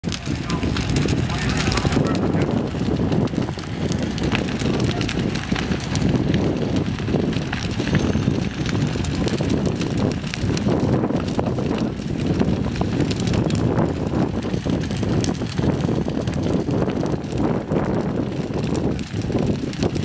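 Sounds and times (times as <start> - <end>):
fire crackling and popping: 0.0 - 20.0
low rumble of fire: 0.0 - 20.0
wind buffeting microphone: 0.0 - 20.0.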